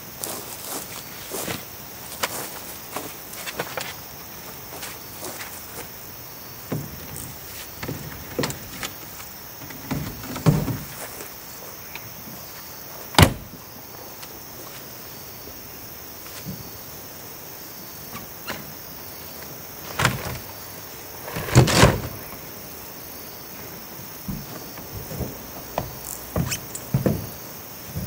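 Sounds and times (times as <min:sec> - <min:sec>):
steady hiss: 0:00.0 - 0:28.0
knocks and scrapes: 0:06.7 - 0:11.2.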